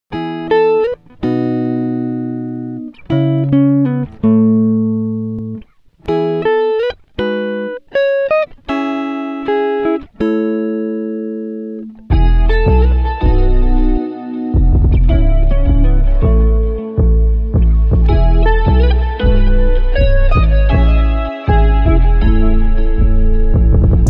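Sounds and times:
slow instrumental melody: 0.1s - 24.0s
deep bass: 12.1s - 14.0s, 14.6s - 24.0s.

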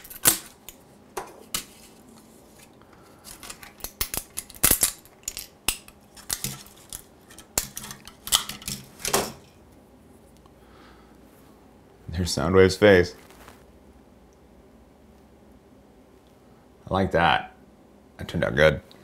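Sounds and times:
plastic parts snapping off: 0.0s - 1.7s, 3.3s - 9.4s.

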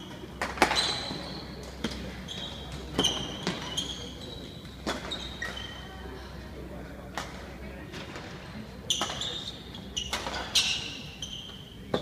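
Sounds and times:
sports shoes squeaking on floor: 0.0s - 6.0s, 8.8s - 12.0s.

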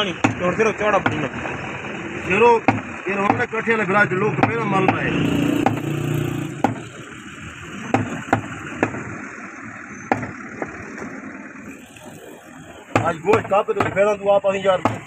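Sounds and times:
cleaver striking wooden block: 2.6s - 3.5s, 4.4s - 7.0s, 7.9s - 9.1s, 10.1s - 10.4s, 12.9s - 14.1s.

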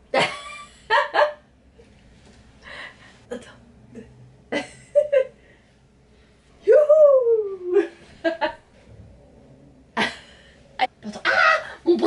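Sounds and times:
breath: 2.6s - 3.2s.

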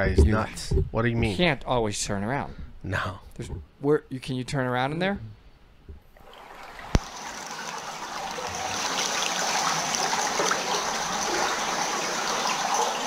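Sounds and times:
running splashing water: 6.1s - 13.0s.

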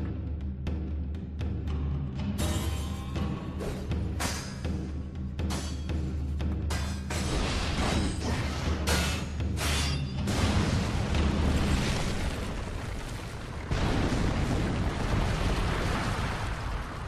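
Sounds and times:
long rumbling blast: 10.3s - 17.0s
loud explosion blast: 10.3s - 17.0s.

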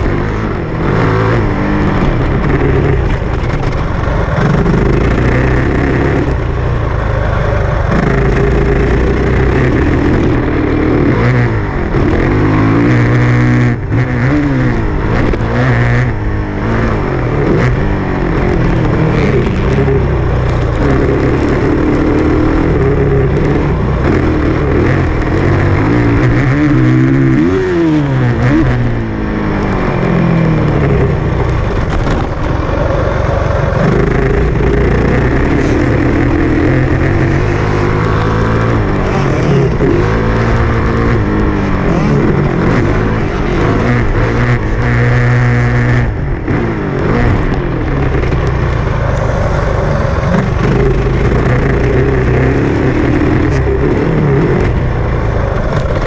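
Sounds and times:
dirt bike engine revving: 0.0s - 56.0s
wind noise: 0.0s - 56.0s.

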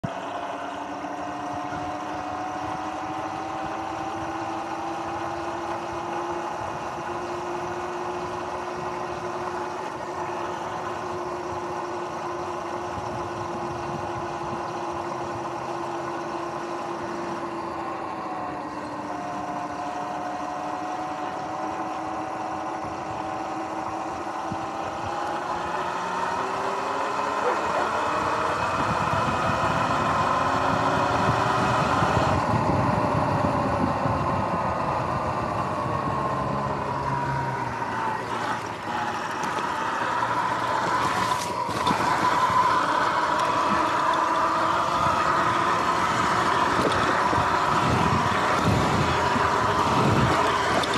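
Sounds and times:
electric motorbike motor whining: 0.0s - 50.9s
tyre and wind noise: 28.2s - 36.7s, 44.6s - 50.9s.

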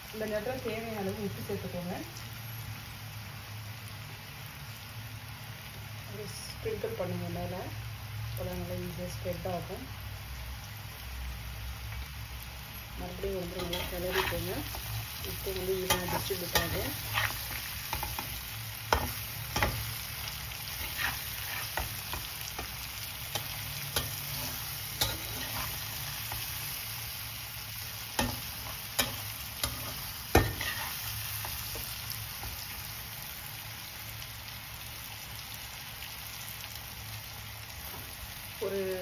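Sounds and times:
food sizzling in oil: 0.0s - 39.0s
metal spatula scraping pan: 13.5s - 26.5s, 28.2s - 32.6s.

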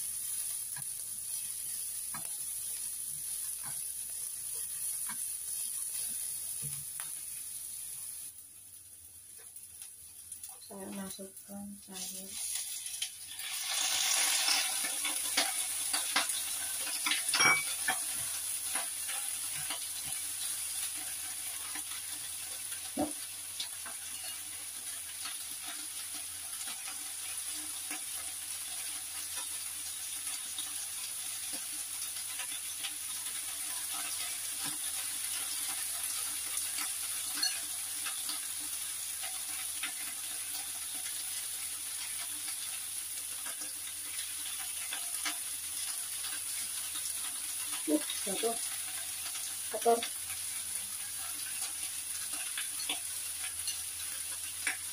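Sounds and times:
vegetables sizzling in oil: 0.0s - 54.9s
spatula clicking against pan: 43.3s - 45.5s, 51.4s - 54.9s.

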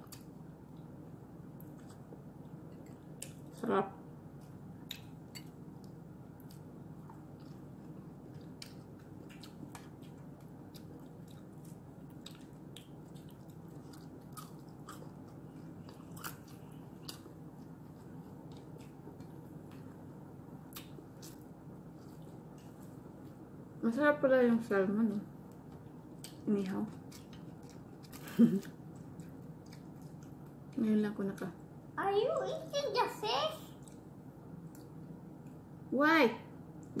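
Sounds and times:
low background hum: 0.0s - 37.0s
chewing: 1.6s - 3.6s, 4.4s - 20.0s, 25.8s - 30.8s.

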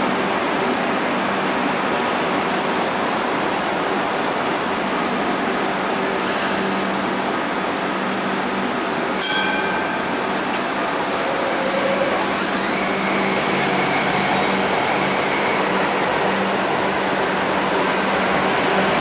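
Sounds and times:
train equipment humming: 8.4s - 19.0s.

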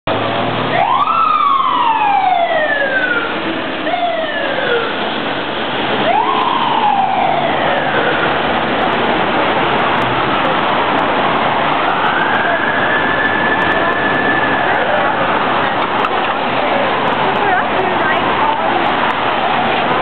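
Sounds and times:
city traffic noise: 0.0s - 20.0s
mechanical fire siren: 0.7s - 5.0s, 6.0s - 8.4s, 12.0s - 14.9s.

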